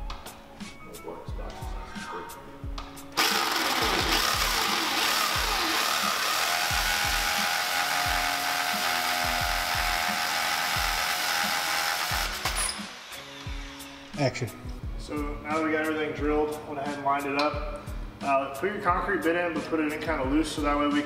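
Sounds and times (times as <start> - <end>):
power drill boring into concrete: 3.2 - 14.1.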